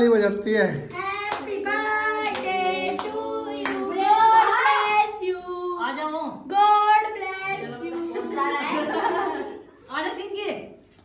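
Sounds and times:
voices singing: 0:01.0 - 0:05.8.

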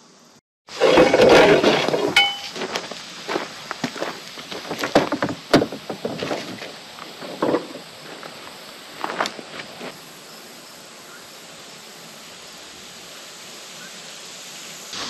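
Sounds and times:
loud scraping rustle: 0:00.7 - 0:08.4.

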